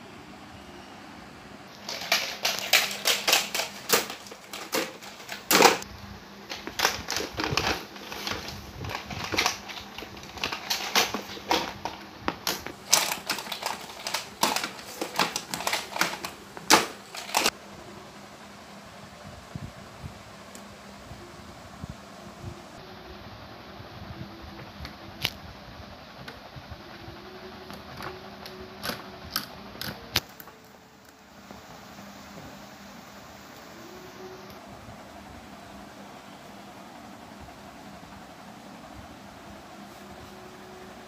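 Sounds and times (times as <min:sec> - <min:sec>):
plastic toys clacking on tile floor: 0:01.8 - 0:05.8, 0:06.5 - 0:17.5.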